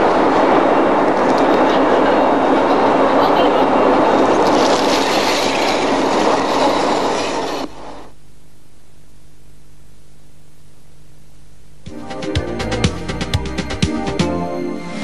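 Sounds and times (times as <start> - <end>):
low steady hum: 0.0 - 15.0
escape reel mechanical rush: 3.9 - 8.0.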